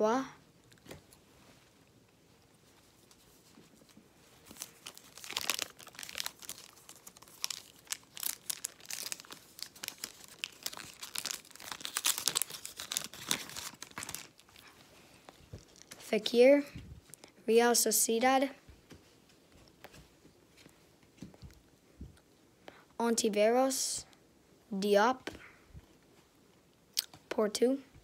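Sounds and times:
card pack wrapper tearing and crinkling: 4.4 - 14.7, 15.6 - 16.0.

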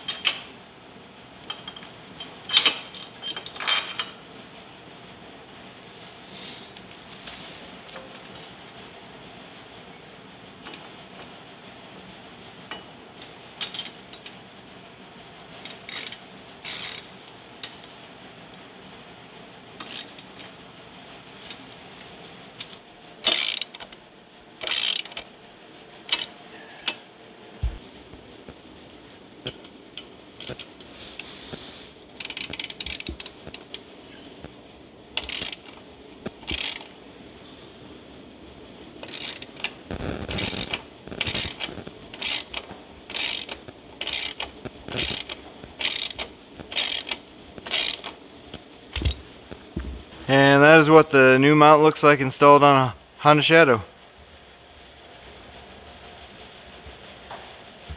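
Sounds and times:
ratchet wrench clicking: 15.6 - 17.1, 19.8 - 20.3, 23.2 - 23.9, 24.6 - 25.2, 32.2 - 33.8, 35.2 - 35.8, 36.4 - 36.9, 39.0 - 39.7, 40.3 - 48.2.

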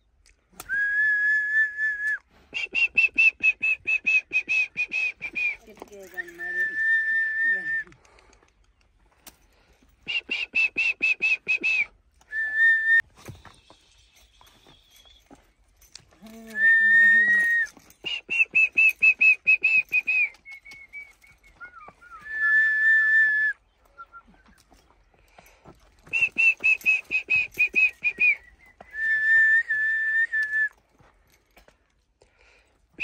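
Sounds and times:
person whistling: 0.6 - 8.0, 10.0 - 15.6, 16.2 - 24.8, 26.0 - 30.8.

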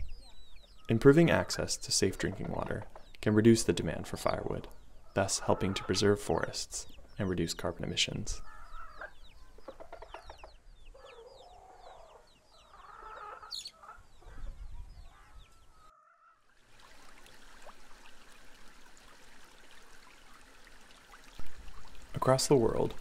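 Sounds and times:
small birds chirping: 0.0 - 16.4
hens clucking: 4.2 - 6.5, 8.6 - 16.2
faint outdoor hiss: 16.5 - 23.0.

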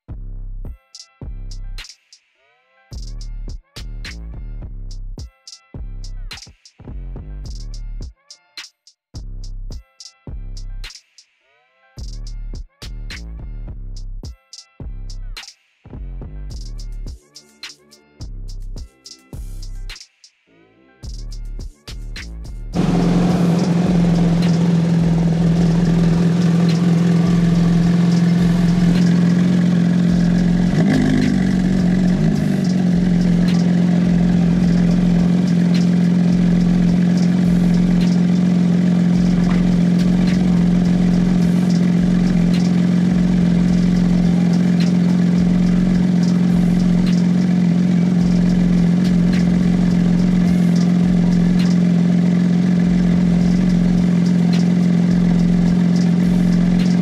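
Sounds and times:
car engine idling: 22.8 - 57.0.

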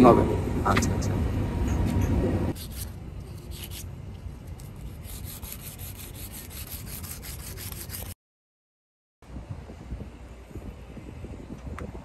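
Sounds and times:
knife rasping through tape: 2.6 - 3.9, 4.5 - 8.2
low rumble: 9.2 - 12.0.

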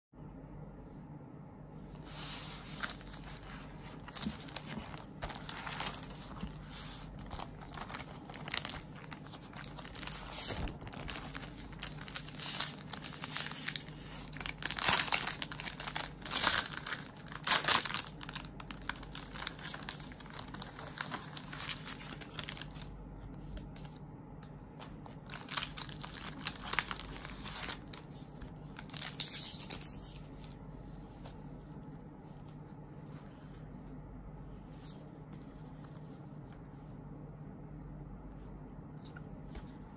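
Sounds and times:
plastic packaging crinkling: 2.1 - 23.0, 24.7 - 30.6.

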